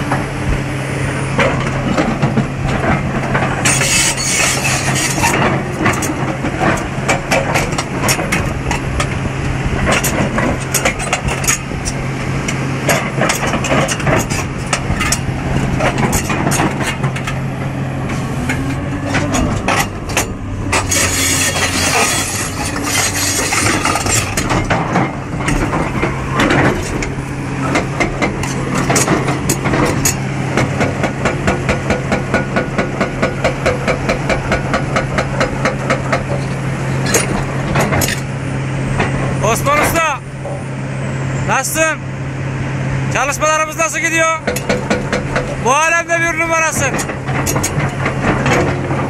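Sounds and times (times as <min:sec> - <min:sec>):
diesel excavator engine running: 0:00.0 - 0:49.0
knocks and clatter: 0:01.4 - 0:09.2, 0:09.8 - 0:17.4, 0:18.1 - 0:38.3, 0:44.2 - 0:49.0.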